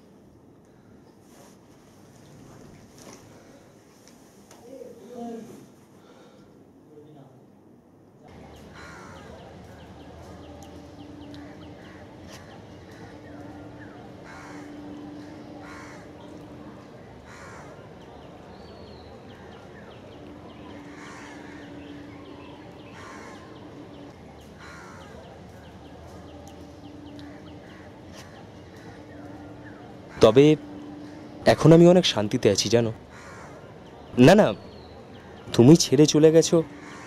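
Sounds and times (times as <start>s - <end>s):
low steady hum: 0.0s - 37.0s
small birds chirping: 8.3s - 37.0s
crows cawing: 8.5s - 18.0s, 19.2s - 31.4s, 32.1s - 34.1s, 36.4s - 37.0s.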